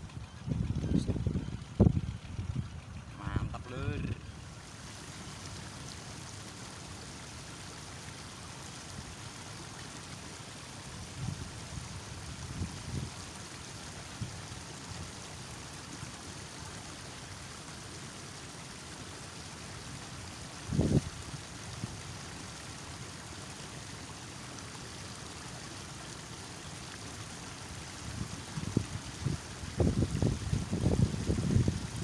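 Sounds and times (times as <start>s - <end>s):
strong wind: 0.0s - 3.5s, 20.7s - 21.1s, 28.2s - 32.0s
wind buffeting microphone: 0.0s - 4.1s, 28.2s - 32.0s.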